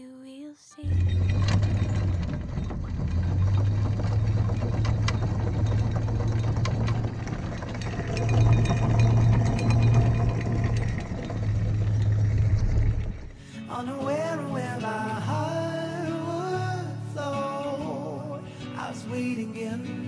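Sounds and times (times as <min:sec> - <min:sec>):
windlass motor hum: 0:00.8 - 0:13.4
chain links clinking: 0:04.8 - 0:13.0.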